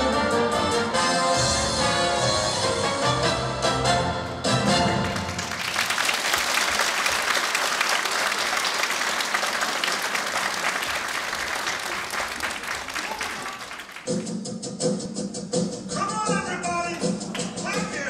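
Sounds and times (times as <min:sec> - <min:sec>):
audience applauding: 0:04.8 - 0:14.2
dance music: 0:13.4 - 0:18.0.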